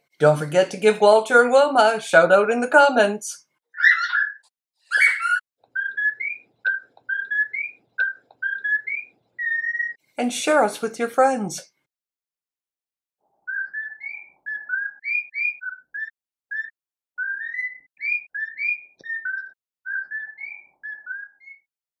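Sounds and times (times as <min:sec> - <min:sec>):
cockatiel whistling a tune: 0:03.8 - 0:10.0, 0:13.5 - 0:21.7.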